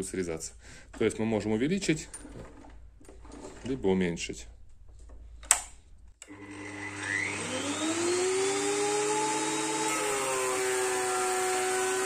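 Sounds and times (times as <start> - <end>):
switch click: 5.4 - 5.8
planer motor whining: 6.2 - 12.0.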